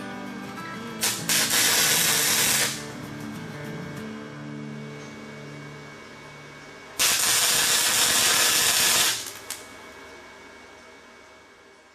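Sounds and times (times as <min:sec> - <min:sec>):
welding arc crackling hiss: 0:01.0 - 0:02.9, 0:07.0 - 0:09.7.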